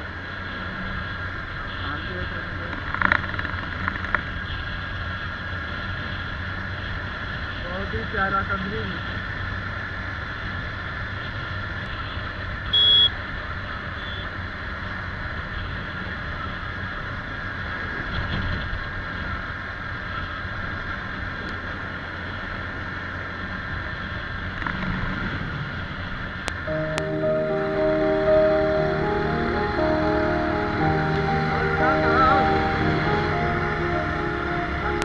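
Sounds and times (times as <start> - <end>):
road and wind noise: 0.0 - 35.0
horn beep: 12.7 - 13.2, 14.0 - 14.3, 26.7 - 35.0.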